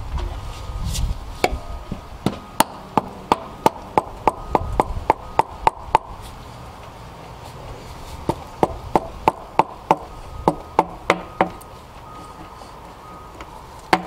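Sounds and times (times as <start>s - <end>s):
hammer tapping on metal: 2.2s - 6.1s, 8.3s - 11.6s.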